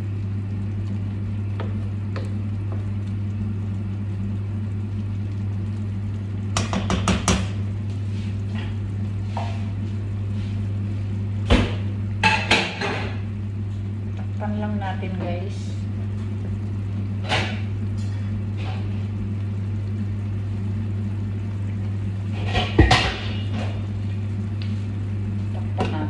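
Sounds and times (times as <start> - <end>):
steady low hum: 0.0 - 26.0
spoon knocking against pan: 6.6 - 7.6.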